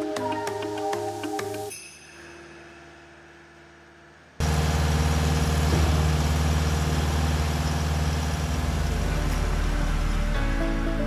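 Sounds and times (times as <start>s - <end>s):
heavy diesel engines running: 4.4s - 11.0s.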